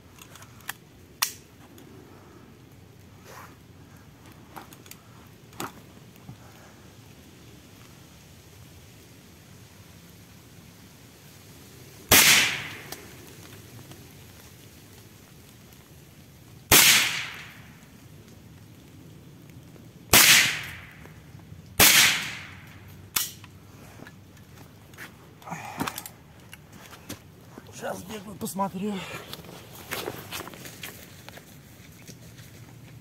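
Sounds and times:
suppressed shotgun shots: 12.1 - 13.0, 16.7 - 17.6, 20.1 - 21.0, 21.8 - 22.6
soft handling noises: 22.9 - 33.0.

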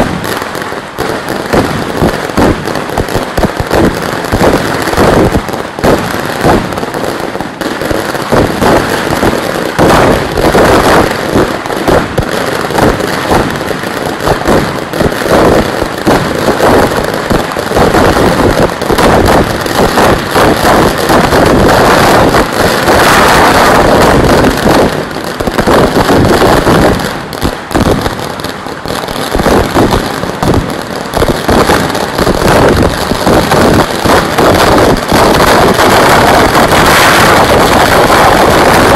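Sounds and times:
firecracker barrage: 0.0 - 38.9.

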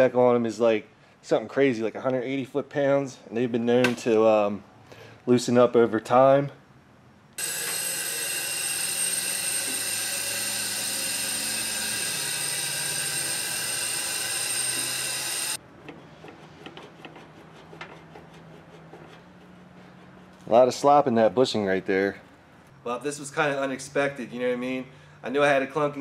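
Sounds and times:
machine motor whining: 7.4 - 15.6.

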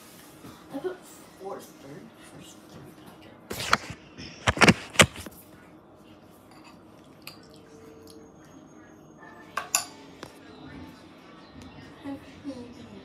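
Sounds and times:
metal spoon clinking against dish: 9.4 - 10.1.

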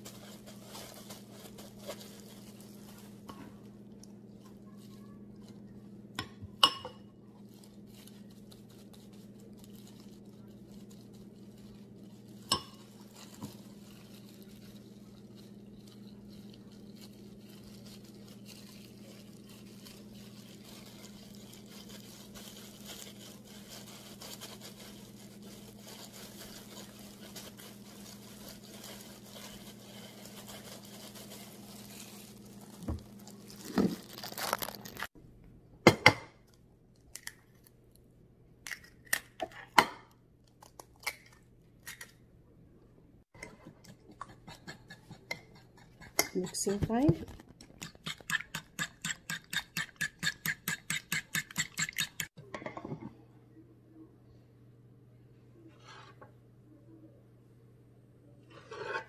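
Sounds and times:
plastic gloves crinkling: 0.0 - 6.2, 7.1 - 35.2, 46.4 - 50.5
egg cracking over bowl: 47.2 - 52.4.

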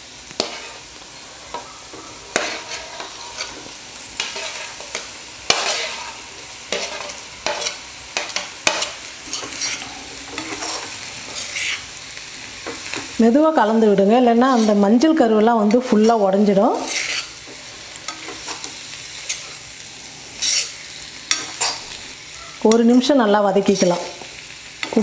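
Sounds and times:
low sizzle: 0.0 - 25.0
spatula scraping and knocking: 4.2 - 6.1, 16.8 - 19.5, 20.4 - 21.9.

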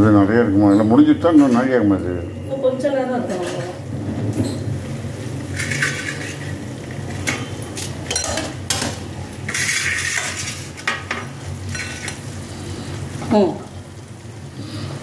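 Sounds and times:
cookware and spoon clinking: 0.6 - 2.0, 3.2 - 4.8, 5.5 - 12.2.

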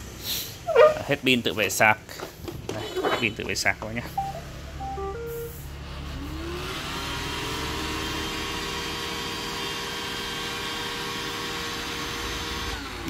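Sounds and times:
robot vacuum beeps: 4.2 - 5.6.

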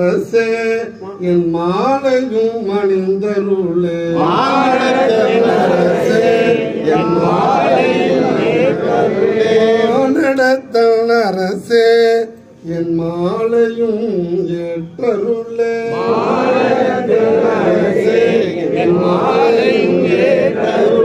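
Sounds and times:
men chanting a hymn: 0.0 - 21.0.

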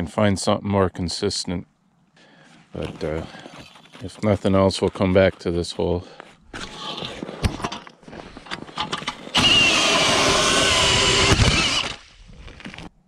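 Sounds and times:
ice auger motor whine: 8.8 - 12.0.

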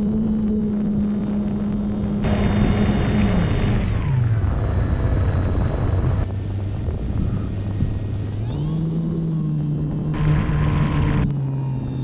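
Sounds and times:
electric motor and propeller: 0.0 - 12.0.

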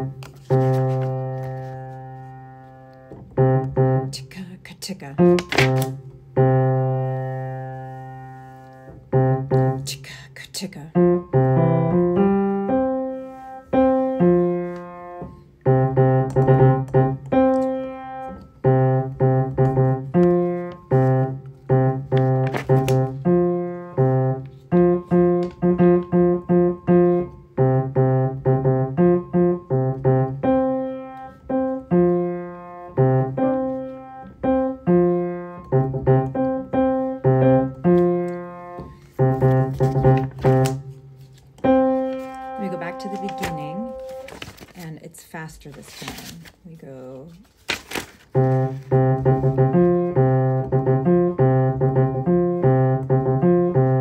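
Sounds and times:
piano chords: 0.0 - 4.3, 5.1 - 10.0, 10.9 - 44.5, 48.3 - 54.0.

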